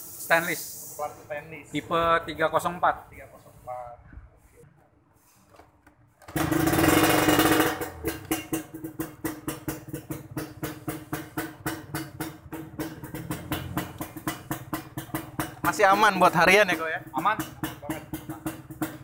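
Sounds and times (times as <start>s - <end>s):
two-stroke motorcycle engine starting: 6.2s - 19.0s.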